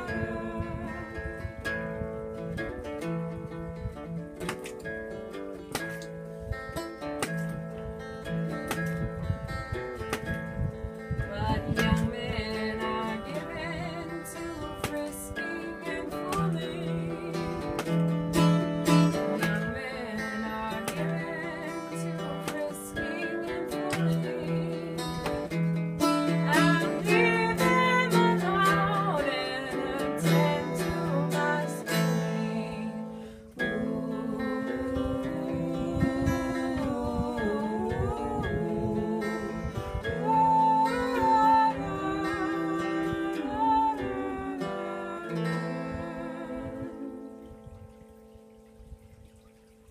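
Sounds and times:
person singing: 0:00.0 - 0:02.0, 0:11.3 - 0:47.6
acoustic guitar strumming: 0:00.0 - 0:49.9.

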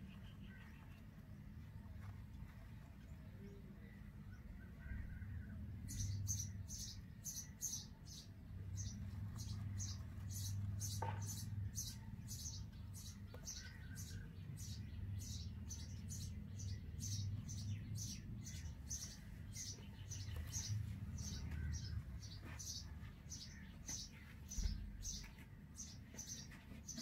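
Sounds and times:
nestlings begging chirps: 0:05.9 - 0:27.0.

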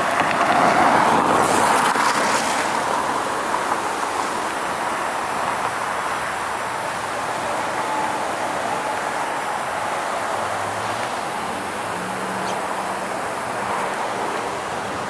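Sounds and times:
car tyres hissing on wet road: 0:00.0 - 0:15.0.

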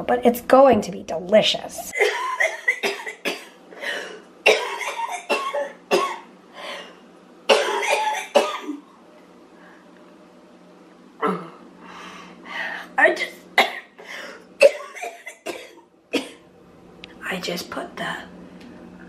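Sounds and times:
woman coughing: 0:01.9 - 0:06.9, 0:07.5 - 0:08.8, 0:13.2 - 0:14.0, 0:14.6 - 0:16.4.

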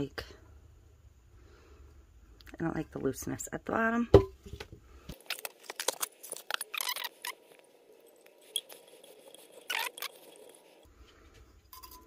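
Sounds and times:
rustling scrapes: 0:05.2 - 0:11.5.

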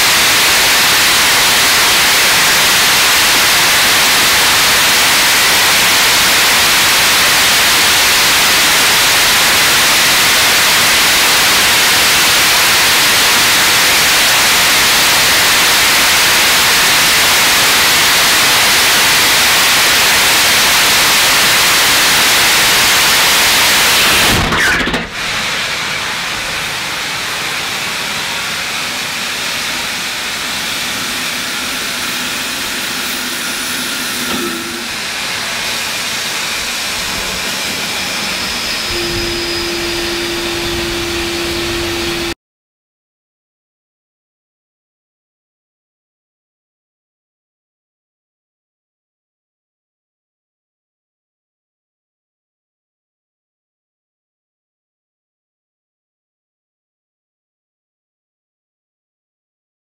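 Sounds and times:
rocket engine roaring: 0:00.0 - 0:42.4.

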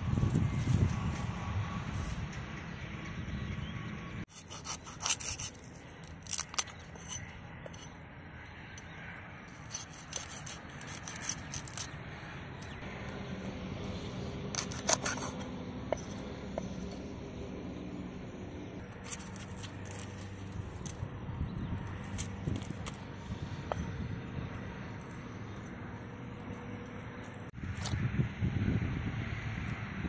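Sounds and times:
knife scraping and chopping fish: 0:04.3 - 0:08.0, 0:08.8 - 0:12.8, 0:14.5 - 0:17.0, 0:18.9 - 0:21.0, 0:21.9 - 0:23.0.

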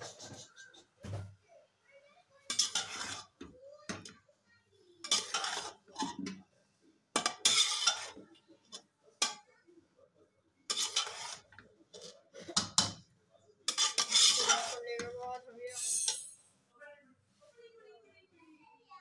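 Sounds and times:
metal spoon scraping metal pot: 0:02.5 - 0:03.5, 0:05.0 - 0:06.4, 0:07.2 - 0:09.4, 0:10.7 - 0:13.0, 0:13.7 - 0:16.5.

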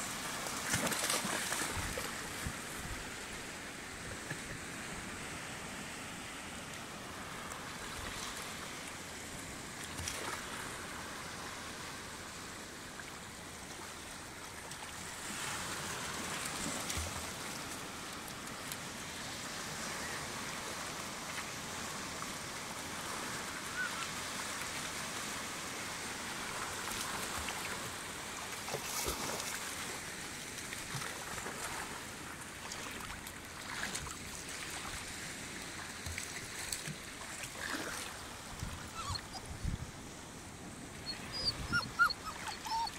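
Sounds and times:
small waves washing over rocks: 0:00.1 - 0:03.3, 0:13.6 - 0:38.6.

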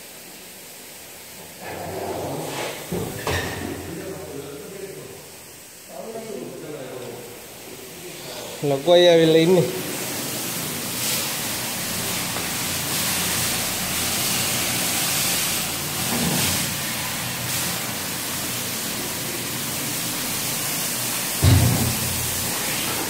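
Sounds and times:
factory rushing hiss: 0:03.8 - 0:23.0.

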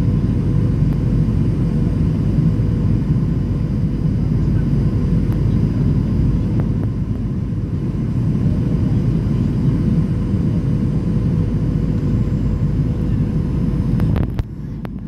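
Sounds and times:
aircraft cabin engine rumble: 0:00.0 - 0:15.0
faint steady whine: 0:00.0 - 0:15.0.

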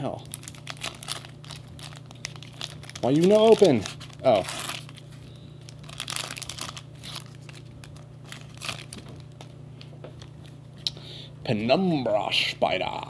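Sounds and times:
foil wrapper crinkling: 0:00.0 - 0:09.6
steady low hum: 0:00.0 - 0:13.0.

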